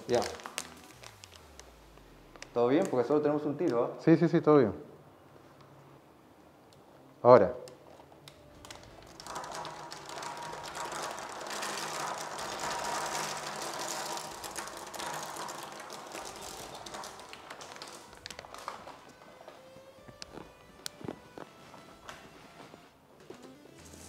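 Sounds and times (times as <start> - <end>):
snack bags crinkling: 0.0 - 3.0, 8.0 - 21.5.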